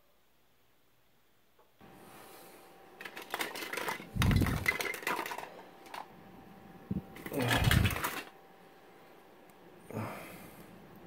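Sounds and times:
plastic toys clattering: 3.0s - 6.1s, 7.2s - 8.3s.

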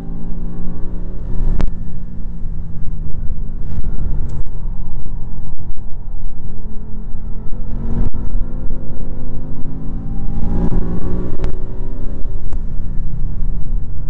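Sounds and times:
car engine running: 0.0s - 14.0s.

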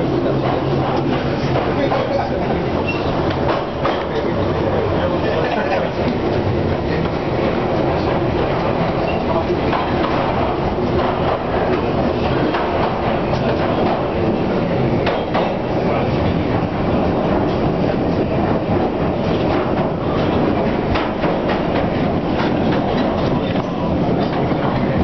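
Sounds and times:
train wheels rumbling: 0.0s - 25.0s
wheels clicking on rails: 0.0s - 25.0s.

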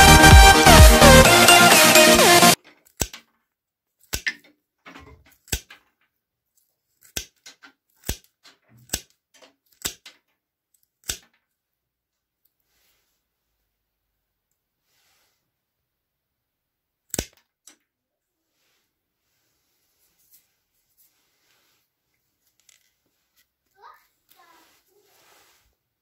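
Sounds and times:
background music: 0.0s - 2.6s
hand snips cutting twig: 2.8s - 3.2s, 4.0s - 4.4s, 5.4s - 5.8s, 7.0s - 9.1s, 9.7s - 10.1s, 11.0s - 11.3s, 17.1s - 17.4s.

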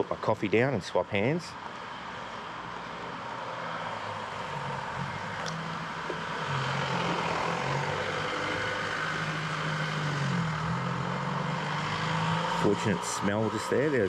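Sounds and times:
vehicle engine running: 4.1s - 14.0s.

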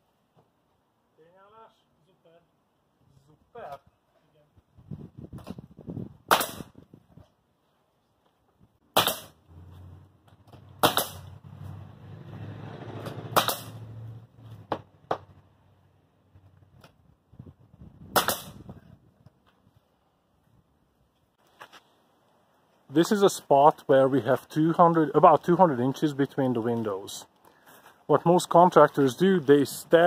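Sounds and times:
nail gun shots: 6.3s - 6.8s, 8.9s - 9.4s, 10.8s - 11.3s, 13.3s - 13.8s, 18.1s - 18.6s.

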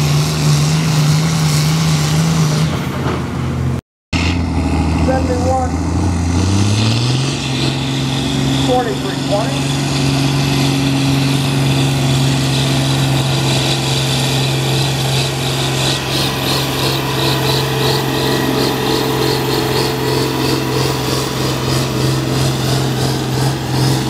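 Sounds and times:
tractor engine under load: 0.0s - 24.0s.

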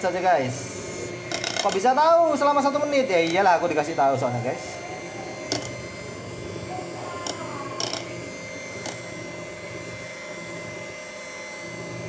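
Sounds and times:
electric mixer whining: 0.0s - 12.0s.

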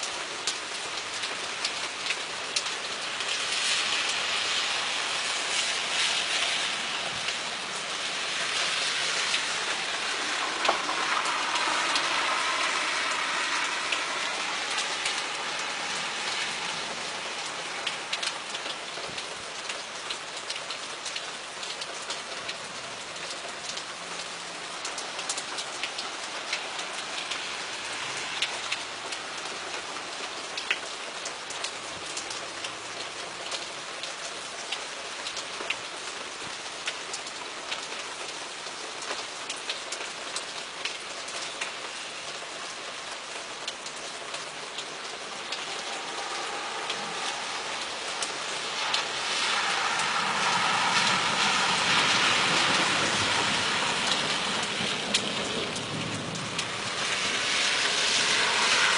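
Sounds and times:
raindrop impacts: 0.0s - 34.1s, 39.0s - 58.9s
rain falling: 0.0s - 58.9s
rushing sound: 8.4s - 18.6s, 45.7s - 54.7s.

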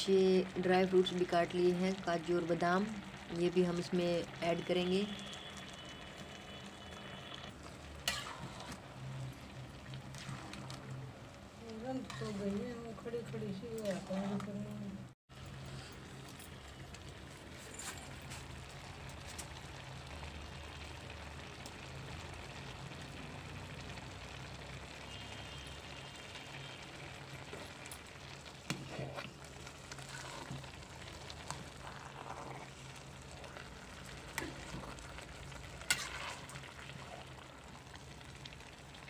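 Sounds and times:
milk bubbling and sizzling: 0.0s - 39.0s
metal ladle scraping and knocking pan: 35.9s - 36.5s.

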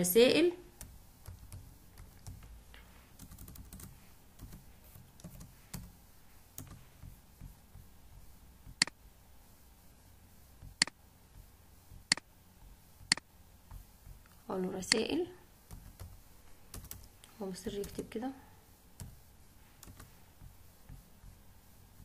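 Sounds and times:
keyboard tapping: 0.8s - 2.5s, 3.2s - 6.0s, 6.6s - 9.0s, 10.6s - 15.0s
keyboard and mouse clicks: 12.0s - 12.3s, 13.0s - 15.0s.

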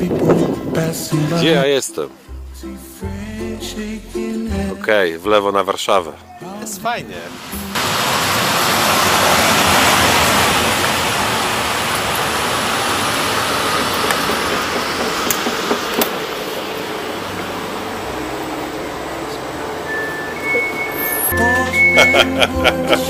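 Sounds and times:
train rolling hiss: 7.2s - 23.0s.

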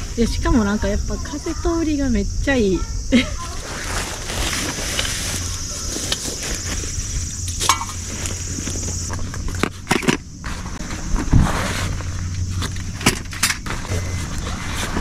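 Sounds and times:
fabric and bag rustling: 3.4s - 9.0s
items knocking and clinking: 7.6s - 8.1s.

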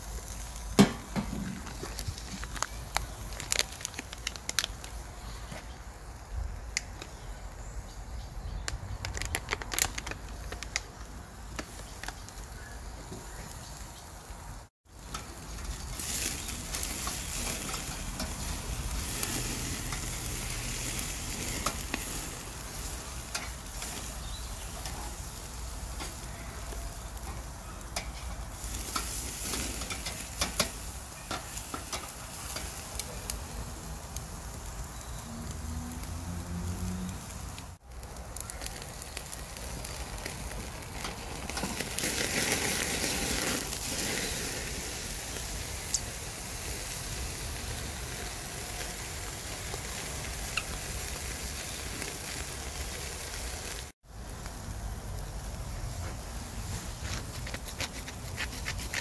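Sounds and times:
crackles and pops: 0.0s - 5.8s, 8.5s - 13.8s, 15.0s - 44.7s, 45.3s - 46.2s, 47.4s - 55.8s
meat sizzling on a grill: 0.0s - 59.0s.

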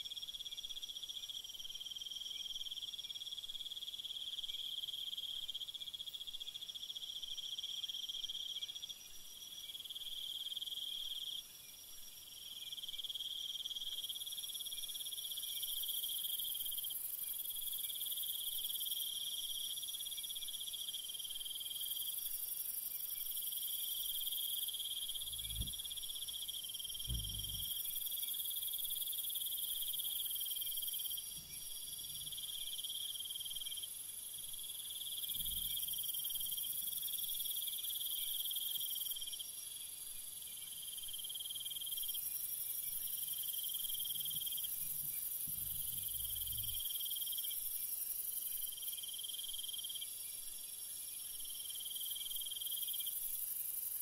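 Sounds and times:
insects chirring: 12.5s - 54.0s
faint low thuds: 25.2s - 26.1s, 27.0s - 27.8s.

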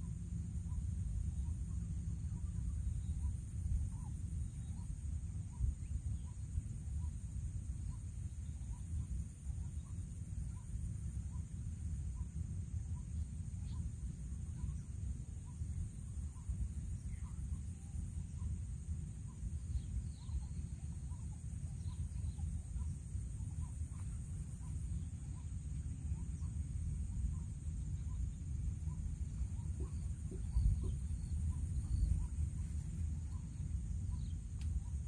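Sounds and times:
low rumble: 10.9s - 35.0s
birds chirping: 12.9s - 35.0s.

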